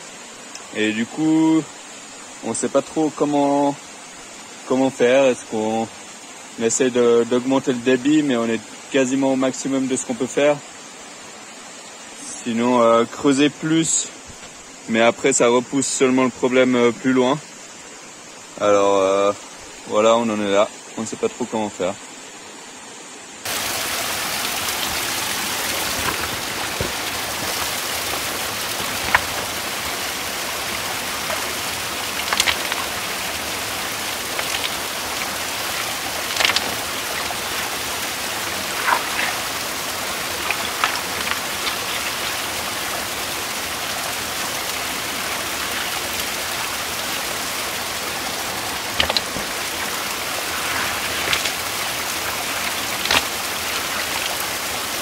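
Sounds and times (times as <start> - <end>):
mountain stream rushing: 0.0 - 55.0
stones clicking and knocking: 24.6 - 42.4, 48.8 - 54.4.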